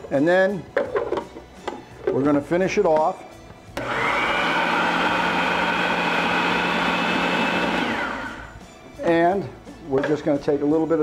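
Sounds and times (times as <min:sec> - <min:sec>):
food processor motor hum: 0:03.8 - 0:08.5.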